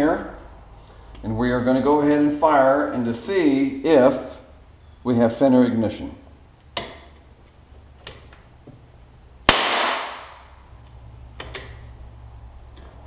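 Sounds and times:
small metallic clicks: 0:10.8 - 0:11.9.

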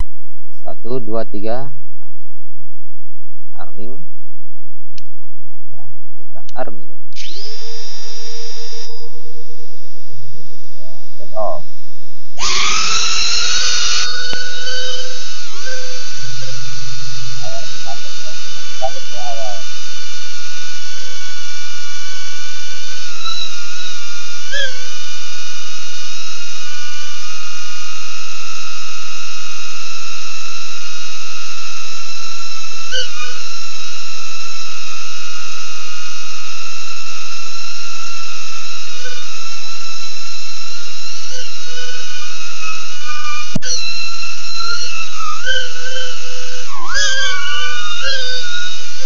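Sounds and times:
quadcopter motors whining: 0:07.2 - 0:09.0, 0:12.4 - 0:27.8, 0:32.9 - 0:33.7, 0:40.2 - 0:49.0.

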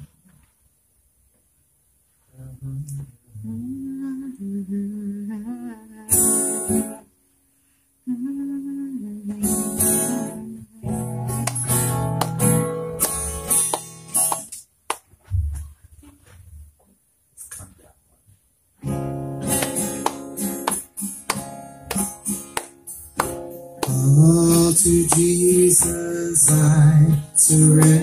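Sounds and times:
acoustic guitar strumming: 0:06.0 - 0:07.1, 0:09.3 - 0:14.6, 0:18.8 - 0:28.0
person singing wordless notes: 0:23.8 - 0:28.0.

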